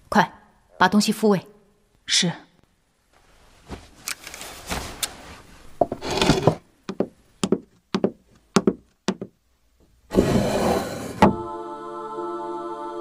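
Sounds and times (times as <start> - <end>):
objects rustling in a drawer: 3.6 - 6.6.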